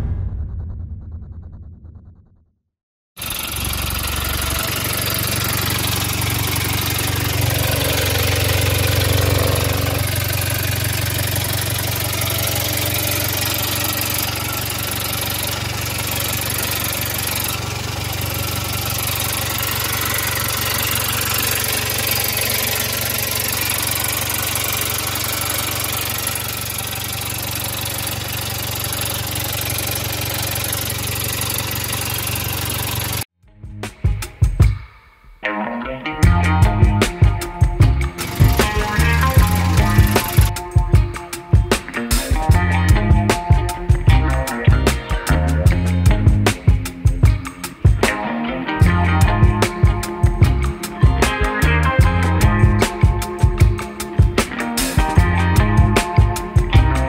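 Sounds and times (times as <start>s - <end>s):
diesel engine idling: 3.2s - 33.3s, 37.8s - 40.5s.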